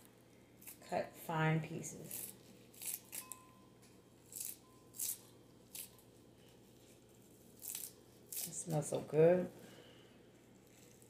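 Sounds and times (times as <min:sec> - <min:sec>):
shears snipping: 0:02.0 - 0:03.4, 0:07.6 - 0:08.9.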